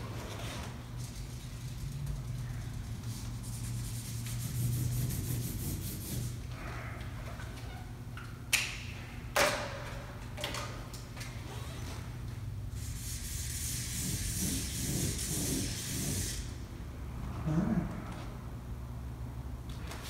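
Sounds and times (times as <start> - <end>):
steady low hum: 0.0 - 19.9
marker pen rubbing on paper: 3.4 - 6.4.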